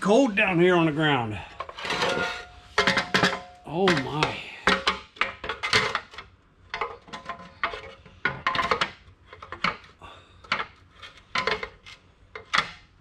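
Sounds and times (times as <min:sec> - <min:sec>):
metal plate clanking and rattling: 0:01.6 - 0:09.8.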